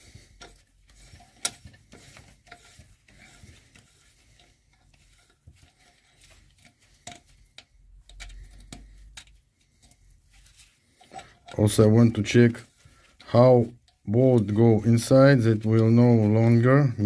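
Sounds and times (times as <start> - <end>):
hand tools clicking on metal: 0.0 - 10.0.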